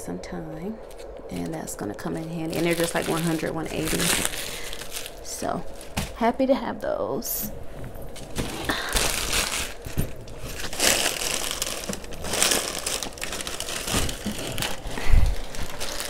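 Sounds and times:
plastic packaging crinkling: 0:00.8 - 0:06.2, 0:08.0 - 0:16.0.

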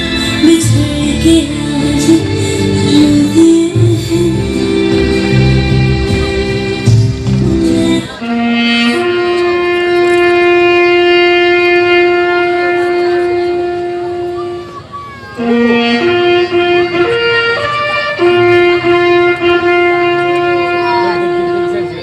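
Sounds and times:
bugle playing slow call: 0:08.2 - 0:22.0.

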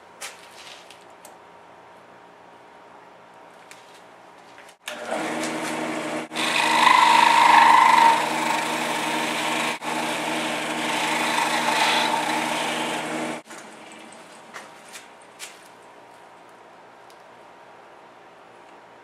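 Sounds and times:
wood lathe motor hum: 0:04.8 - 0:13.4.

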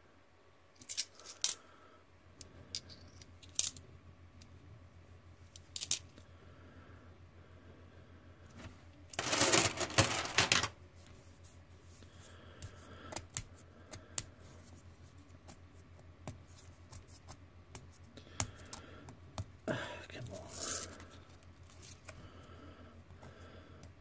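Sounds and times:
coins clinking: 0:09.2 - 0:10.8.

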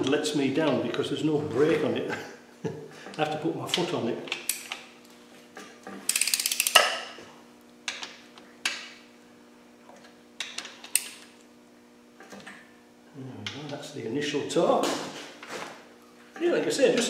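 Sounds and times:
socket ratchet clicking: 0:06.1 - 0:07.0.

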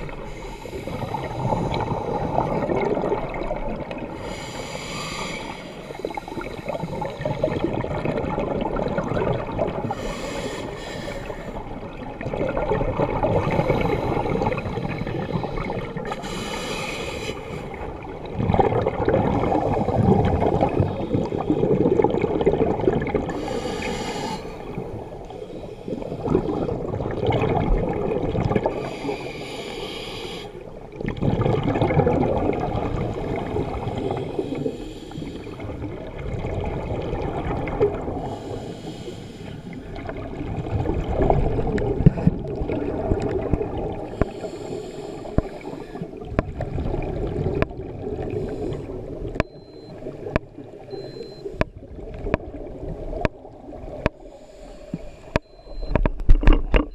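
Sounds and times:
exhaled bubbles gurgling: 0:00.0 - 0:56.9
regulator inhalation hiss: 0:04.2 - 0:06.4, 0:10.0 - 0:11.4, 0:16.2 - 0:17.6, 0:23.4 - 0:24.7, 0:28.8 - 0:30.6, 0:38.3 - 0:39.8, 0:44.1 - 0:46.0.

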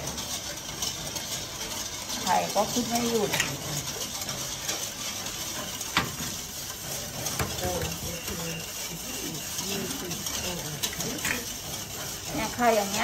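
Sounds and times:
whisk beating liquid in metal bowl: 0:00.0 - 0:13.0
faint voices: 0:07.5 - 0:11.6.

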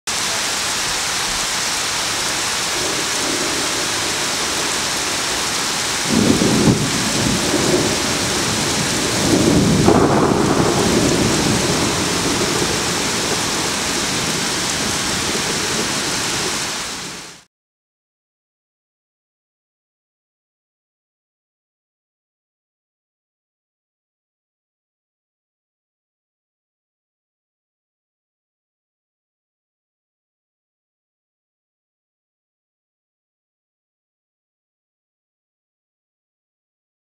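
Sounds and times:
heavy rain falling: 0:00.1 - 0:17.5
thunder rolling: 0:02.0 - 0:17.4.

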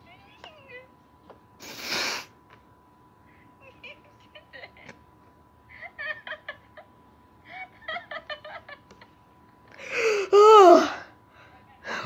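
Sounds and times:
boy laughing: 0:03.6 - 0:05.0, 0:05.7 - 0:06.9, 0:07.5 - 0:09.0.

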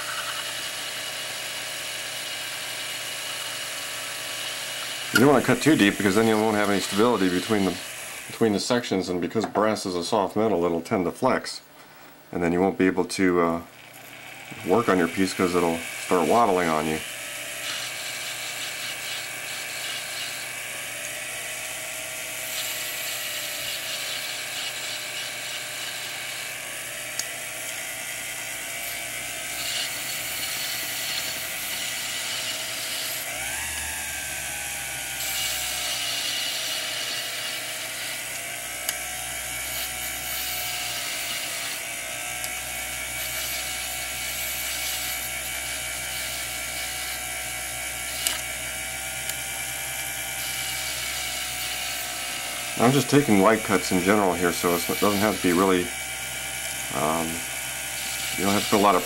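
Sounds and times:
lathe motor whine: 0:00.0 - 0:08.5, 0:13.8 - 0:59.0
graver cutting brass: 0:00.0 - 0:08.7, 0:13.8 - 0:59.0.

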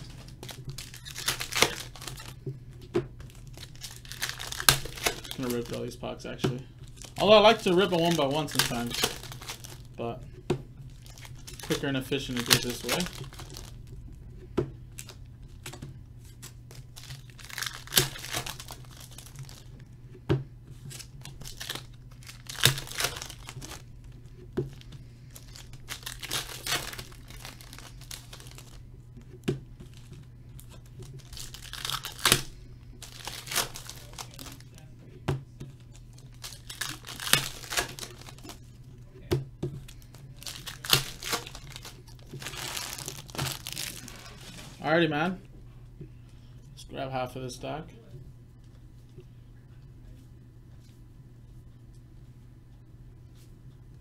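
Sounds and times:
wrapper crinkling: 0:00.0 - 0:02.4, 0:03.2 - 0:06.0, 0:06.8 - 0:10.2, 0:10.8 - 0:14.1, 0:14.9 - 0:19.9, 0:20.8 - 0:28.9, 0:29.8 - 0:34.9, 0:35.7 - 0:38.9, 0:39.8 - 0:44.9
wrappers being torn open: 0:00.0 - 0:02.4, 0:03.2 - 0:05.9, 0:06.9 - 0:10.0, 0:10.9 - 0:13.9, 0:14.9 - 0:19.8, 0:20.8 - 0:23.9, 0:24.6 - 0:28.8, 0:29.8 - 0:34.8, 0:35.8 - 0:38.7, 0:39.8 - 0:44.6.

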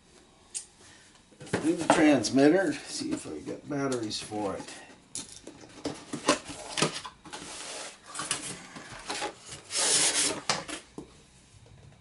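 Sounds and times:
foam scraping against cardboard: 0:09.4 - 0:10.4.

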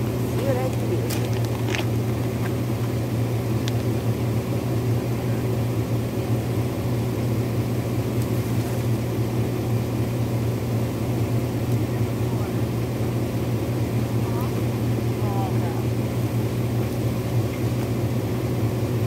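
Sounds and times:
vehicle engine idling: 0:00.0 - 0:19.0
branches cracking: 0:00.7 - 0:02.6.

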